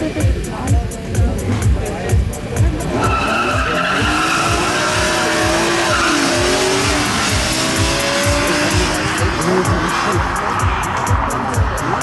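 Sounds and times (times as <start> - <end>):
car engines revving at full throttle: 0.0 - 12.0
tyre squeal: 3.0 - 7.4.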